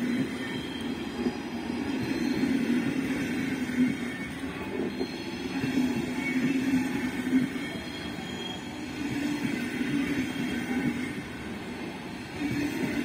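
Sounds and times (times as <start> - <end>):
train wheels rumbling on rails: 0.0 - 13.0
faint wheel squeal: 4.7 - 9.2.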